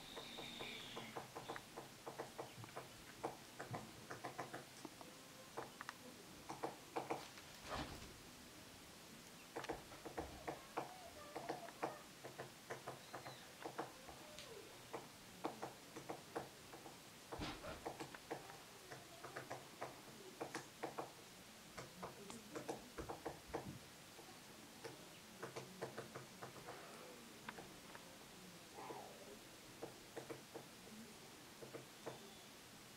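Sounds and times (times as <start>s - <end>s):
woodpecker pecking at wood: 0.1s - 7.3s, 9.5s - 26.8s, 29.8s - 30.7s, 31.6s - 32.2s.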